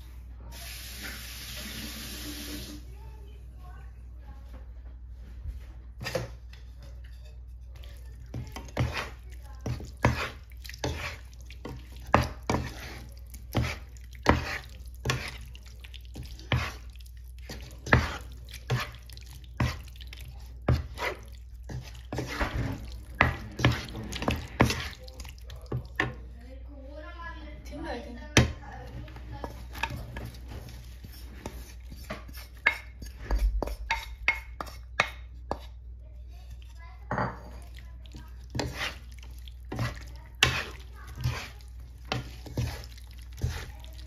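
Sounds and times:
wet slapping of food in pan: 0:05.6 - 0:26.5, 0:28.2 - 0:44.0
spatula knocking on pan: 0:08.2 - 0:15.4, 0:28.3 - 0:28.6.

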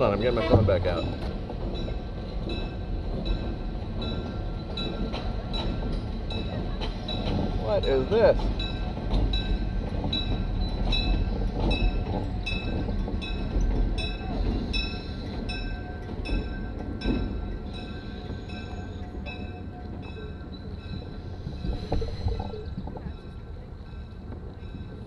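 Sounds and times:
train rumbling over bridge: 0:00.0 - 0:25.0
train wheels clacking: 0:00.0 - 0:25.0.

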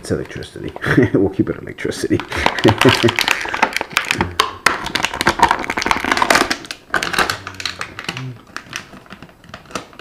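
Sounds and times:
plastic packaging crinkling: 0:02.0 - 0:10.0.

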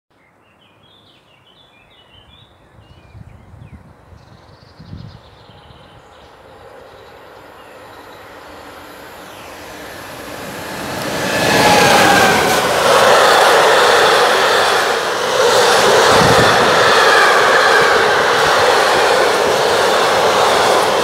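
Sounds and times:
freight train passing: 0:03.9 - 0:21.0
train wheels rolling: 0:06.3 - 0:21.0.

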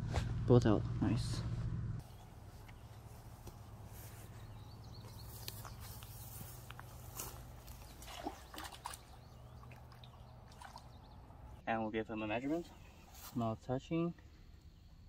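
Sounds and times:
steady low hum: 0:00.0 - 0:11.6
shallow water sloshing and dripping: 0:06.5 - 0:11.6
small splashes and clicks: 0:07.6 - 0:11.1.

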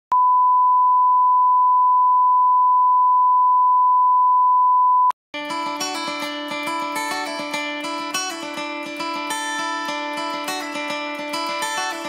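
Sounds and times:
steady test tone beep: 0:00.1 - 0:05.1
music: 0:05.4 - 0:12.0.

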